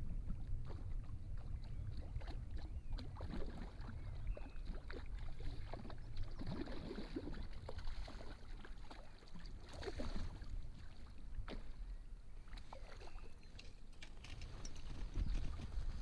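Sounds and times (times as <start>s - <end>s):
fish splashing and thrashing: 1.9s - 11.8s.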